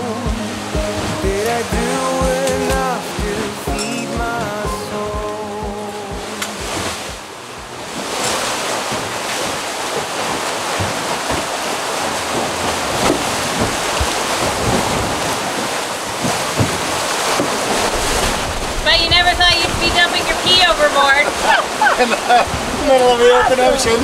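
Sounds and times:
water rushing and splashing past hulls: 0:00.0 - 0:24.0
wind buffeting microphone: 0:17.8 - 0:24.0.

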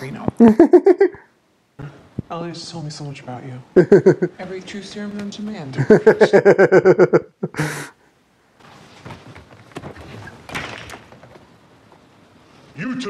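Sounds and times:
man laughing heartily: 0:00.4 - 0:01.3, 0:03.8 - 0:04.4, 0:05.8 - 0:08.0.

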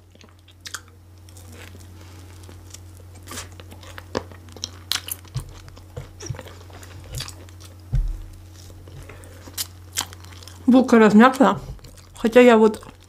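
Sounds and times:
chewing and wet mouth sounds: 0:00.0 - 0:13.0
low electrical hum: 0:00.0 - 0:13.0.

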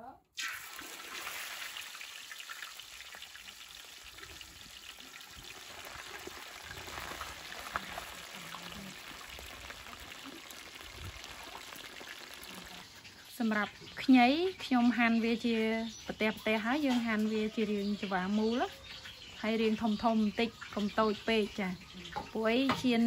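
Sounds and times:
fish sizzling in hot oil: 0:00.4 - 0:14.4.

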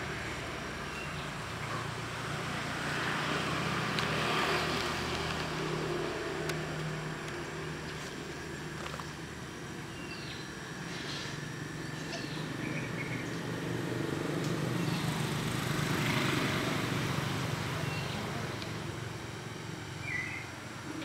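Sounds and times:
low background hum: 0:00.0 - 0:15.2
bird chirps: 0:09.9 - 0:10.6, 0:11.8 - 0:13.4, 0:20.0 - 0:20.5.

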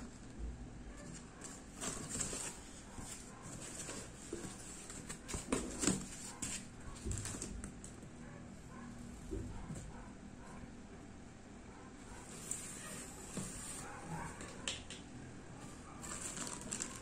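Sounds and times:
plastic bag rustling: 0:01.1 - 0:07.9, 0:15.6 - 0:17.0.

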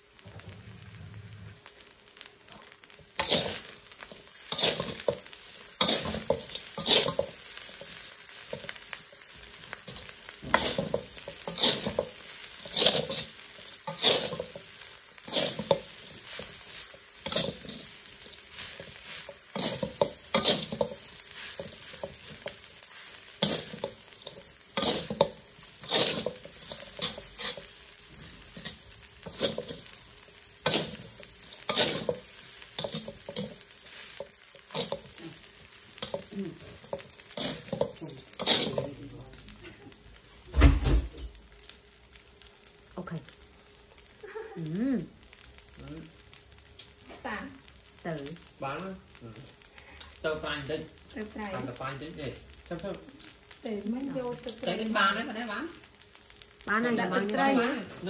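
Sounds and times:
food sizzling: 0:00.0 - 0:58.0
metal spatula scraping a wok: 0:03.2 - 0:08.8, 0:09.8 - 0:27.8, 0:28.5 - 0:30.0, 0:30.6 - 0:39.0.

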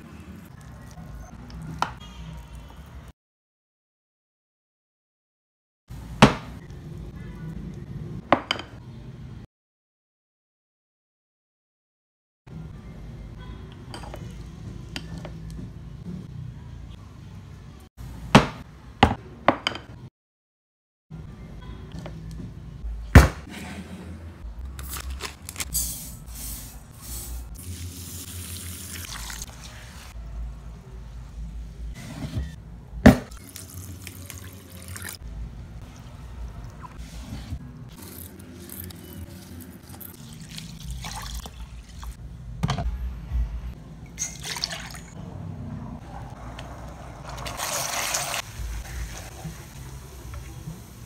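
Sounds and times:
water splashing into bowl: 0:44.2 - 0:45.1
liquid pouring into metal pan: 0:47.3 - 0:48.4.

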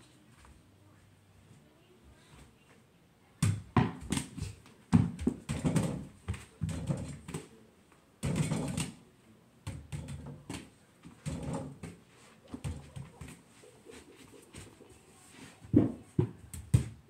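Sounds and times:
ball bouncing thuds: 0:03.4 - 0:07.5, 0:09.6 - 0:13.4, 0:15.7 - 0:17.0.

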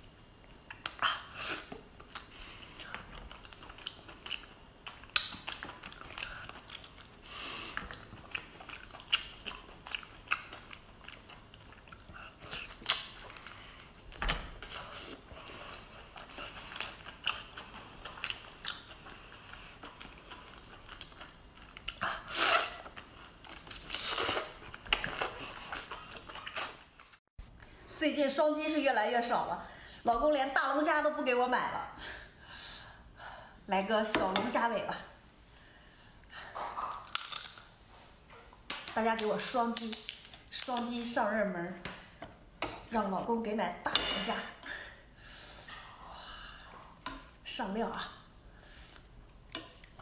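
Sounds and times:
wet chewing: 0:00.6 - 0:27.2.

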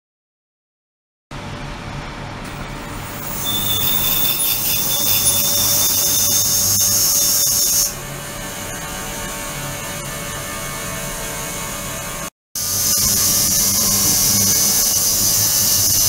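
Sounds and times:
loud high hiss and whine: 0:02.7 - 0:08.9, 0:12.6 - 0:16.0.

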